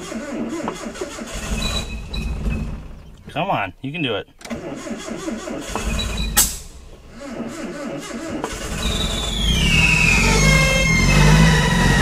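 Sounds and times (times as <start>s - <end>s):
car engine starting and running: 0.0s - 12.0s
sharp pop: 6.4s - 6.7s.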